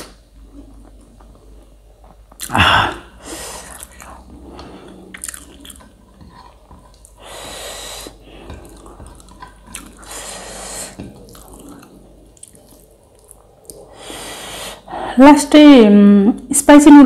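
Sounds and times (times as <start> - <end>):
hissing breaths drawn in: 10.0 - 11.0.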